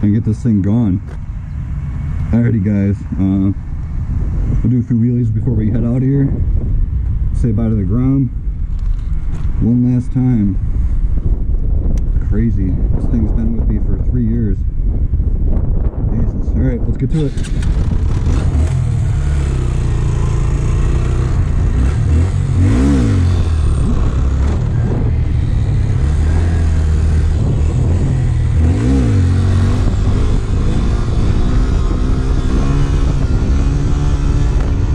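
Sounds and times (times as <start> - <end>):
motorcycle engine revving: 17.1 - 34.9.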